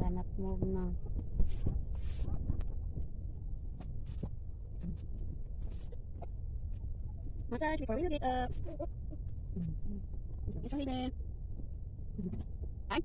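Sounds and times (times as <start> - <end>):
steady low rumble: 0.0 - 13.0
hands rubbing soft swishes: 1.4 - 2.6.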